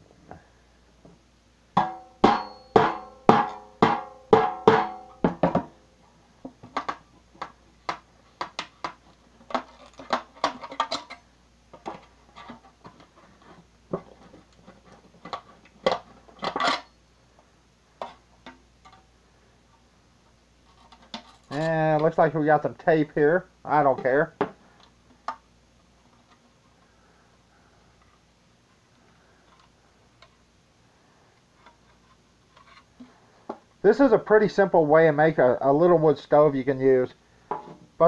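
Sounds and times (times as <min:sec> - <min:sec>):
metal tin being struck: 0:01.8 - 0:05.7.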